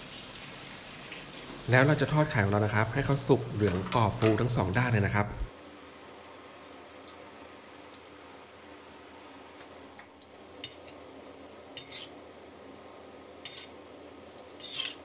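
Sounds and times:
egg sizzling in hot oil: 0:00.0 - 0:04.8, 0:05.5 - 0:15.0
metal spatula scraping pan: 0:11.8 - 0:12.2, 0:13.4 - 0:13.7, 0:14.6 - 0:15.0.

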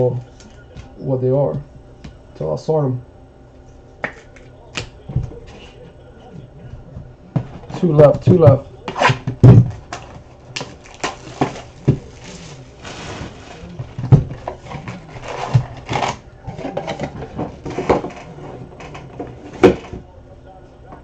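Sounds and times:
wrapping rustling and tearing: 0:10.6 - 0:19.0.

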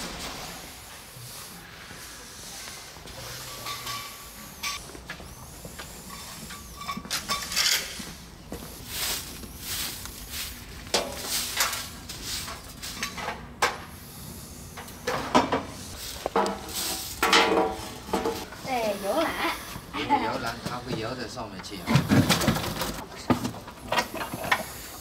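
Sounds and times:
straw rustling: 0:08.7 - 0:12.9.

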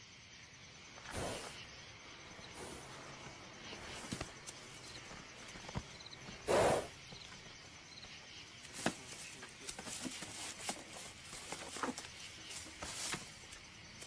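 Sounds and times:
scuffling knocks and rustles: 0:03.1 - 0:06.4, 0:07.1 - 0:14.0.

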